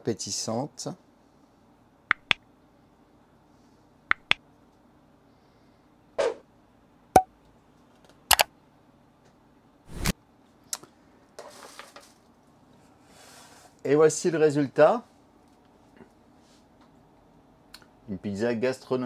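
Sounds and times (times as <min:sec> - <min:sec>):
faint room hum: 0:00.0 - 0:19.0
sharp clicks and taps: 0:02.1 - 0:02.4, 0:04.1 - 0:04.4.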